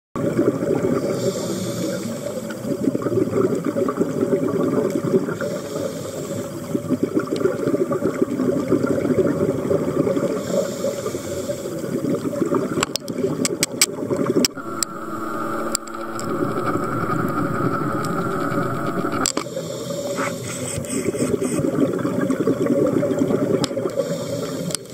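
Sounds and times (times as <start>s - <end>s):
sharp clicks: 14.5s - 19.4s.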